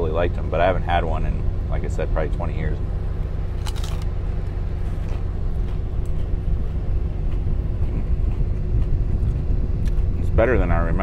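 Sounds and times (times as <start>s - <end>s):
truck engine idling: 0.0s - 11.0s
crunch of taco shell bite: 3.6s - 4.1s.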